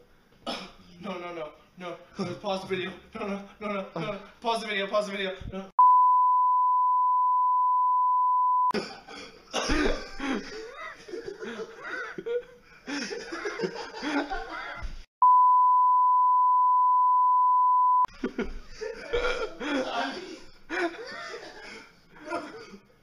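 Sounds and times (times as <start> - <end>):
high censor bleep: 5.8 - 8.7, 15.2 - 18.1
people coughing: 8.7 - 14.9, 18.8 - 23.0
people laughing: 10.0 - 15.0, 18.1 - 22.7.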